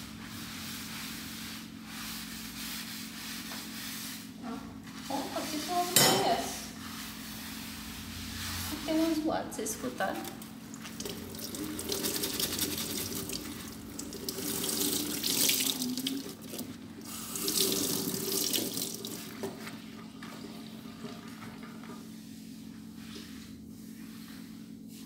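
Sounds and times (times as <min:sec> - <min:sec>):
tap water running into sink: 0:10.3 - 0:21.9.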